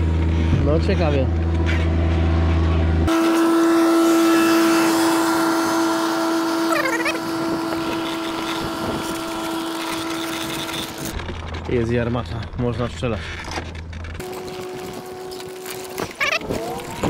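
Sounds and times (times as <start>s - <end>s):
motor whine: 1.2s - 11.6s, 13.7s - 17.0s
wheels rattling over paving stones: 7.8s - 17.0s.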